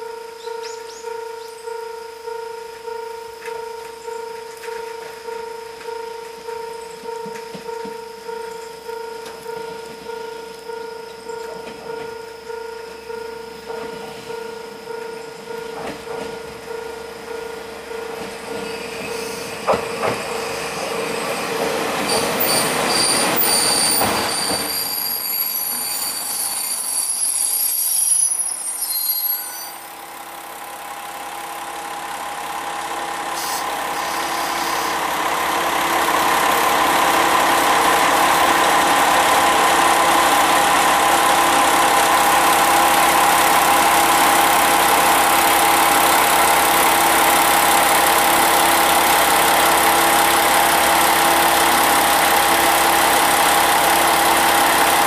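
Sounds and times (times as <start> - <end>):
train wheel clicks: 18.2 - 20.3
wheels and brakes squealing: 18.5 - 30.0
diesel engine idling: 29.8 - 55.0.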